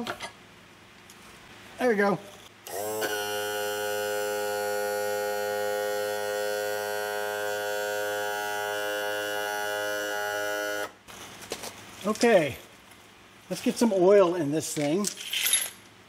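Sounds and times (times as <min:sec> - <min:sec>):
electric motor humming: 0:02.6 - 0:11.0.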